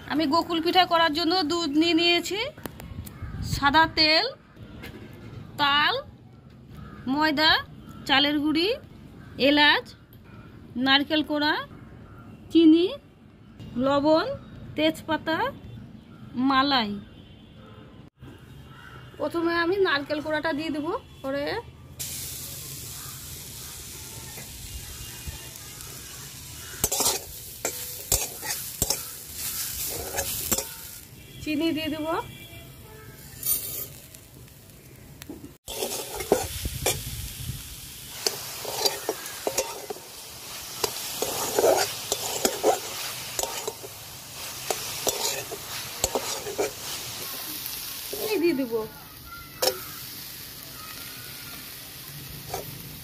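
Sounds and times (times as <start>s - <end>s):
steady hiss: 22.0s - 27.3s
light sizzle: 22.0s - 53.0s
spatula scraping metal pan: 26.7s - 31.0s, 35.7s - 37.0s, 38.2s - 47.4s.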